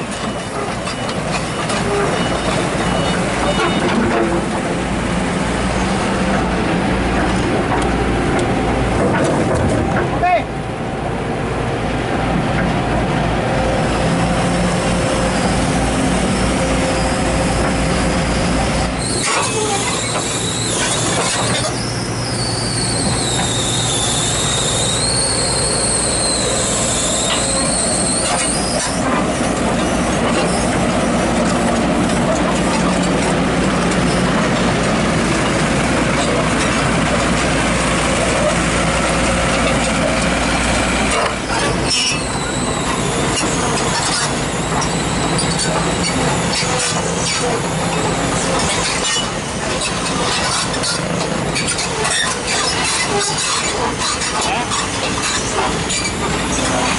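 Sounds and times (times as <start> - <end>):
excavator diesel engine running: 0.0 - 56.9
high wavering metallic squeal: 14.4 - 31.2, 39.6 - 56.9.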